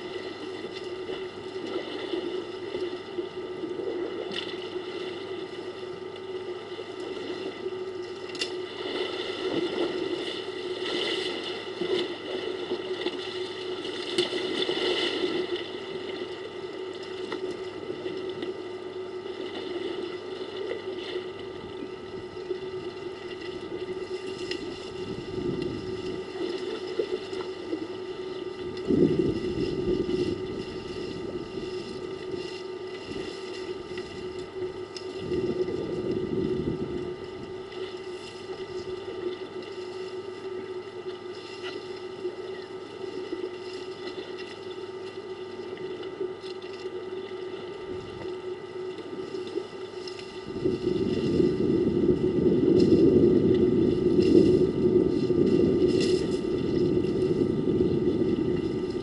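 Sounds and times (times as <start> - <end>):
steady mechanical hum: 0.0 - 59.0.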